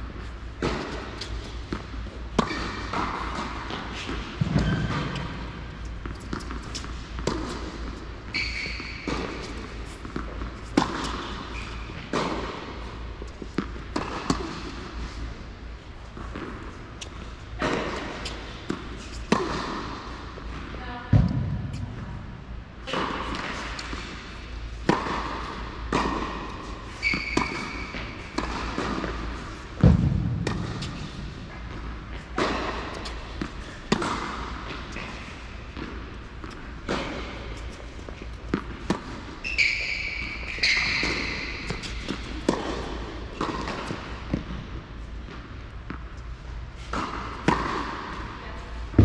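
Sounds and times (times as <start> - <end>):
tennis balls struck and bouncing: 0.2 - 49.0
shoe squeaks: 8.3 - 9.6, 11.5 - 12.0, 26.9 - 28.2, 39.4 - 42.3.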